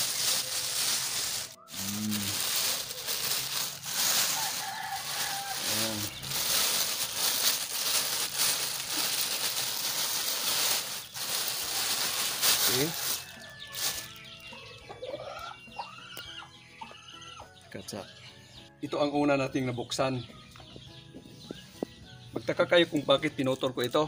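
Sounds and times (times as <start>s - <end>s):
plastic bag rustling and crinkling: 0.0s - 14.2s
short low calls: 1.7s - 2.4s.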